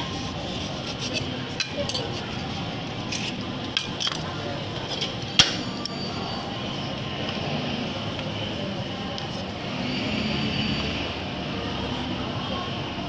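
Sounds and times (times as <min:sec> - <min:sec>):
steady background noise: 0:00.0 - 0:13.0
metal spatulas clinking and scraping: 0:00.4 - 0:05.7.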